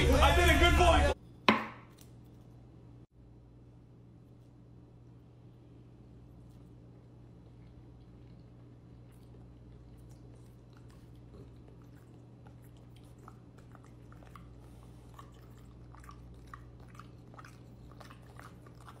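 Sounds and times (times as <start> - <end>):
steady low hum: 0.0 - 19.0
dog chewing food: 6.8 - 19.0.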